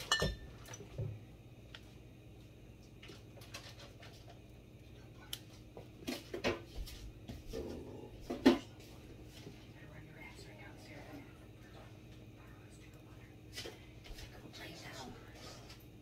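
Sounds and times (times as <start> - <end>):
kitchen items clattering: 0.0 - 0.9
faint low hum: 0.0 - 16.0.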